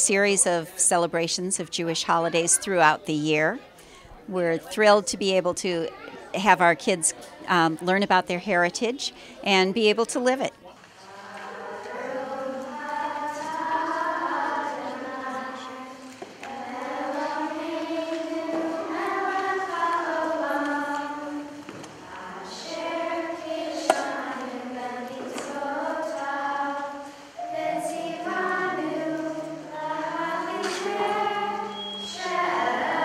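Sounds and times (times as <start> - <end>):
children singing together: 11.0 - 33.0.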